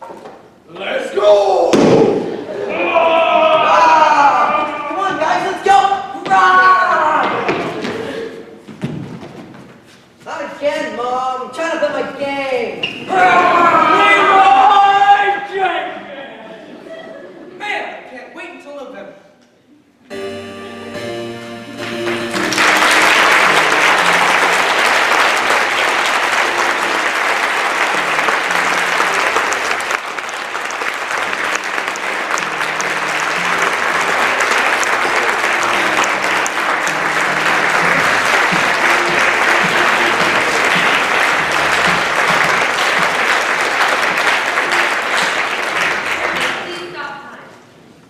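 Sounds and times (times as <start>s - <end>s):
quiet music: 20.1s - 24.9s, 31.4s - 43.2s
audience applauding: 21.7s - 46.9s.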